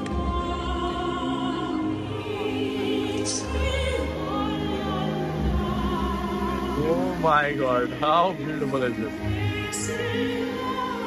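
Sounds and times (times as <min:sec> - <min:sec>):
operatic singing with orchestra: 0:00.0 - 0:11.0.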